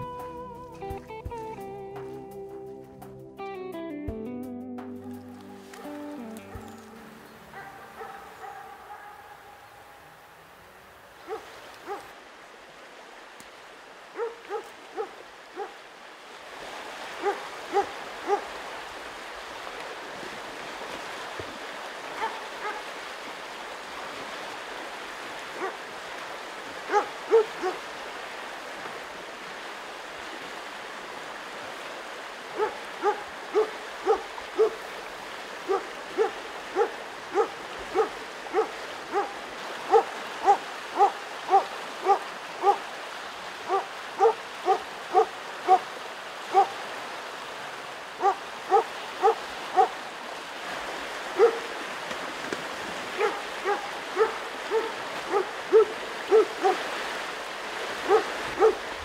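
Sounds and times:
river rushing: 0:00.0 - 0:03.7, 0:04.9 - 0:59.0
dog barking sharply: 0:05.8 - 0:09.8, 0:14.2 - 0:15.7, 0:17.2 - 0:18.4, 0:22.2 - 0:22.8, 0:26.9 - 0:27.8, 0:32.6 - 0:34.8, 0:35.7 - 0:42.8, 0:43.7 - 0:45.8, 0:46.5 - 0:46.7, 0:48.2 - 0:49.9, 0:51.4 - 0:51.6, 0:53.2 - 0:56.8, 0:58.1 - 0:58.8.

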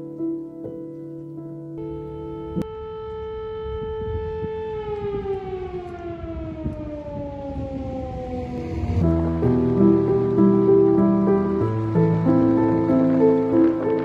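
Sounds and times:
music: 0:00.0 - 0:05.0, 0:09.0 - 0:14.0
air-raid siren wailing: 0:01.8 - 0:14.0.

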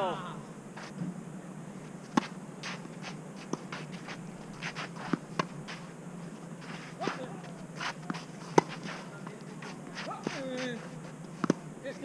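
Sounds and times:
shoes scuffing on clay: 0:02.0 - 0:11.6
racket hitting tennis ball: 0:02.1 - 0:05.9, 0:06.6 - 0:11.7.

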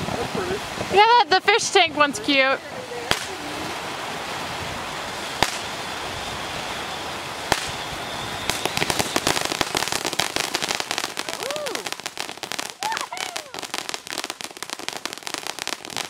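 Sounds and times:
fireworks spraying sparks with hiss: 0:00.0 - 0:16.0
sharp pops: 0:03.1 - 0:03.4, 0:05.4 - 0:05.7, 0:07.5 - 0:07.8.

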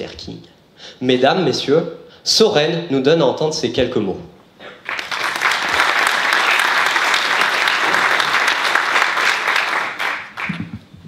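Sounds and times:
audience applauding: 0:04.8 - 0:10.8.

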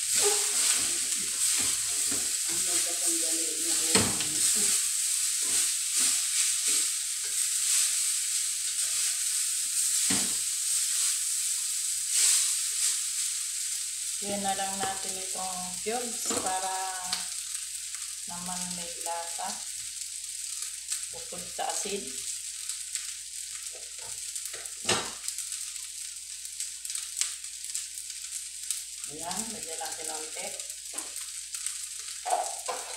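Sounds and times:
spatula scraping wok: 0:00.0 - 0:11.3, 0:32.2 - 0:32.9
rice sizzling in oil: 0:00.0 - 0:32.9.

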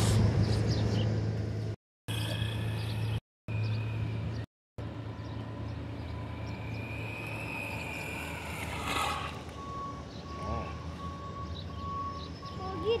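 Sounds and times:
rc truck motor whining: 0:05.5 - 0:09.7.

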